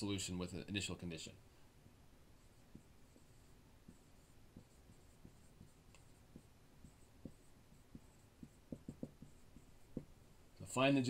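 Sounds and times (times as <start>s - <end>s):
marker writing on whiteboard: 2.3s - 10.3s.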